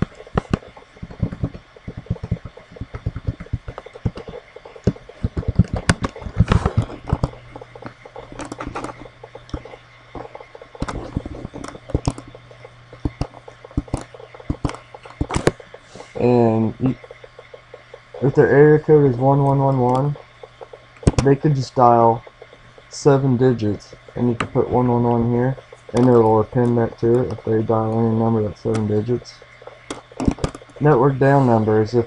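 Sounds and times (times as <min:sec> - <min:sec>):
low hum: 0:00.0 - 0:32.0
mouse clicks: 0:00.3 - 0:12.4.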